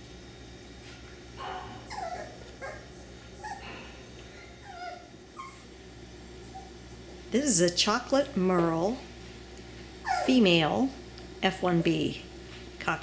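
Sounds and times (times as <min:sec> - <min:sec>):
puppy whimpering and yipping: 0:01.8 - 0:03.7, 0:04.3 - 0:05.7, 0:10.0 - 0:10.4.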